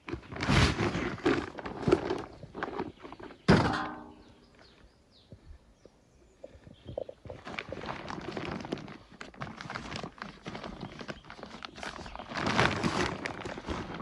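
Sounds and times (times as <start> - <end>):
loud ringing thunk: 3.5 - 4.2.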